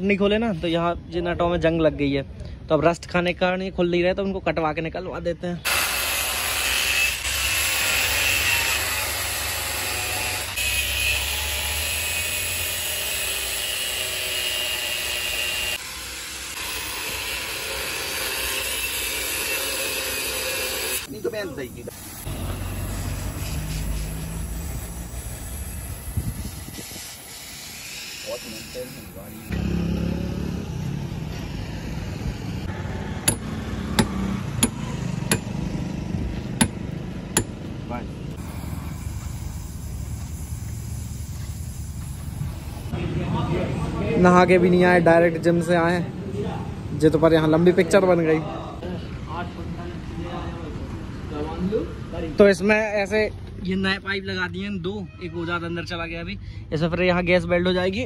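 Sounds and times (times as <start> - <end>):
angle grinder grinding steel: 5.7 - 21.3, 21.9 - 30.6
hammer striking steel: 33.2 - 35.6, 36.6 - 37.7.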